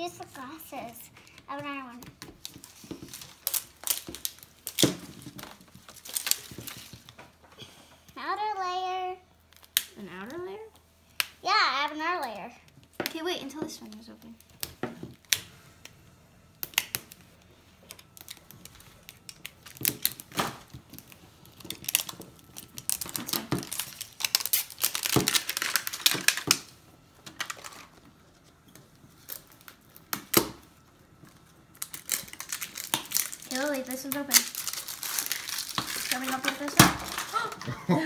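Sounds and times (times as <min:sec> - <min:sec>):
plastic packaging crinkling and tearing: 0:00.0 - 0:07.4, 0:09.5 - 0:10.0, 0:16.6 - 0:37.8.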